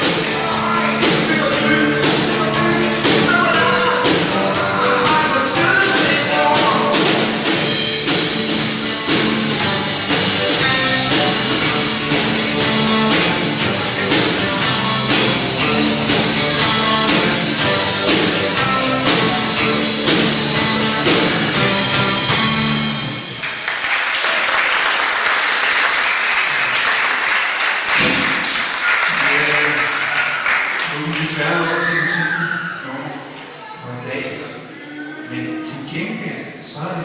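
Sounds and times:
live rock band playing: 0.0s - 23.8s
audience applauding: 23.1s - 32.4s.

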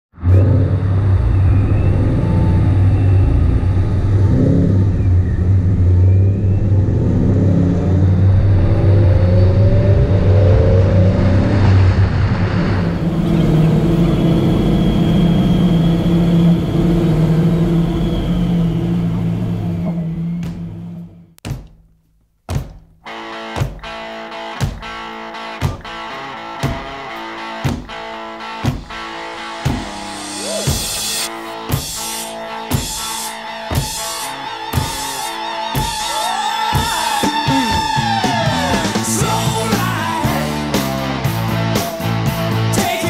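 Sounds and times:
car engine: 0.1s - 21.4s, 27.7s - 42.8s
road noise: 0.1s - 21.4s.

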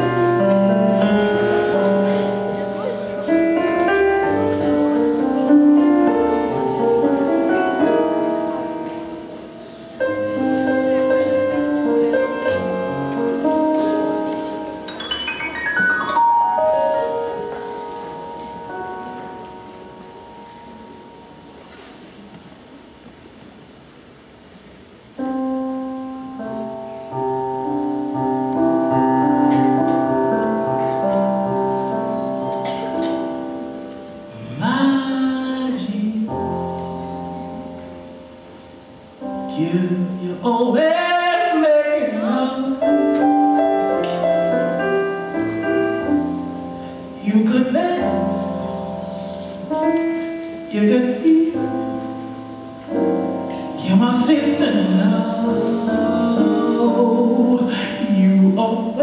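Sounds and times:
keyboard chords: 0.0s - 23.1s, 25.2s - 59.0s
person singing: 34.3s - 37.7s, 39.4s - 43.4s, 47.0s - 49.6s, 50.6s - 52.2s, 53.7s - 59.0s.

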